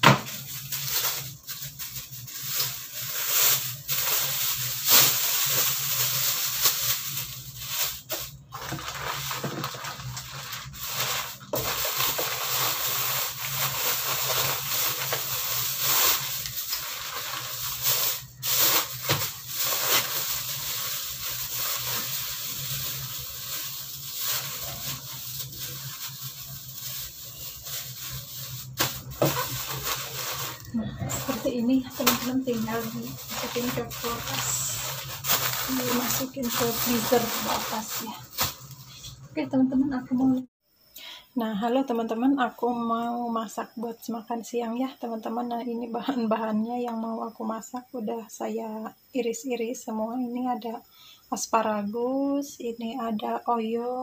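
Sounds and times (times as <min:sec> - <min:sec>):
plastic bags rustling: 0:00.0 - 0:39.2.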